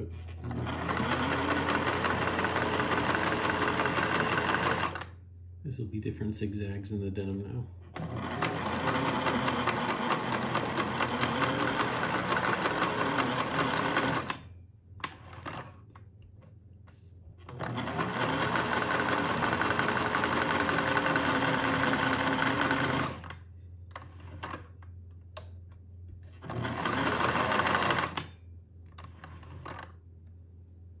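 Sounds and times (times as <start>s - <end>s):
sewing machine stitching: 0.3s - 5.2s, 7.9s - 15.8s, 17.4s - 24.8s, 26.3s - 28.4s, 29.0s - 30.0s.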